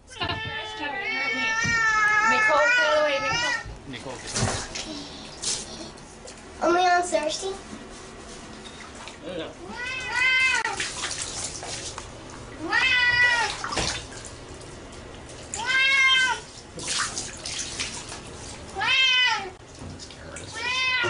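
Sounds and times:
cat meowing: 0.1 - 3.7, 9.6 - 10.8, 12.6 - 13.6, 15.6 - 16.5, 18.8 - 19.6, 20.5 - 21.0
water pouring and splashing: 3.9 - 5.8, 9.8 - 19.0, 19.6 - 21.0.

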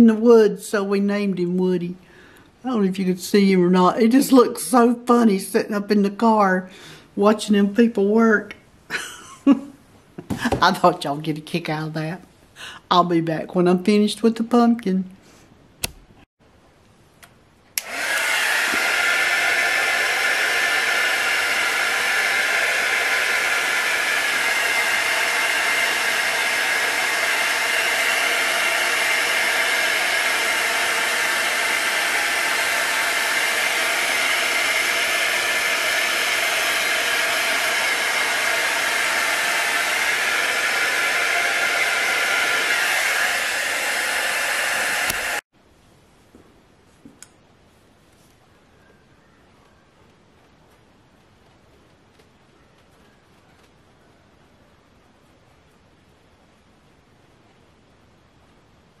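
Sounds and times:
heat tool blowing hot air: 17.8 - 45.5.

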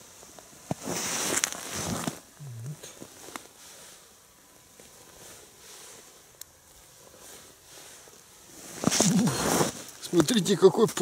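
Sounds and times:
jacket sleeve rustling: 6.9 - 10.3.

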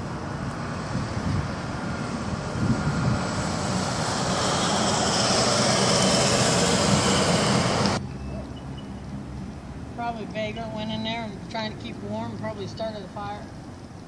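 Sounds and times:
pickup truck driving past: 0.0 - 10.0.

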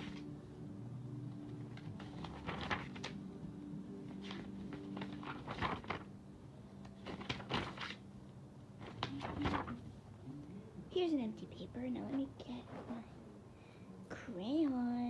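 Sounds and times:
steady low hum: 0.0 - 15.0
paper rustling and knocking: 1.7 - 3.2, 4.1 - 6.1, 7.0 - 8.0, 8.8 - 9.9.

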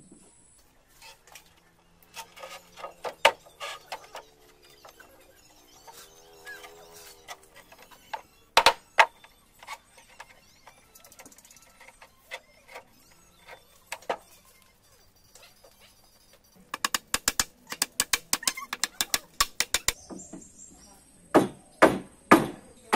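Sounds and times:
knocks and taps of wood and tools: 7.6 - 10.4, 16.7 - 20.5.

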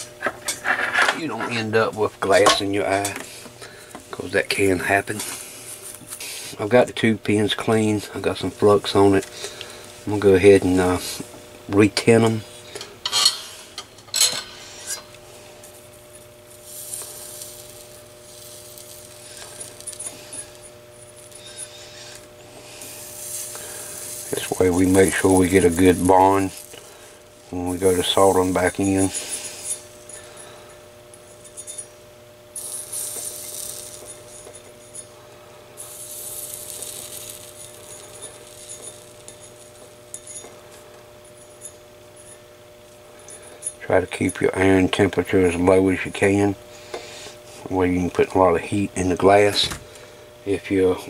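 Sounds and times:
faint steady hum: 0.0 - 51.0
flux sizzling under soldering iron: 0.0 - 51.0
flux sizzling and crackling: 14.6 - 30.6, 32.6 - 40.5.

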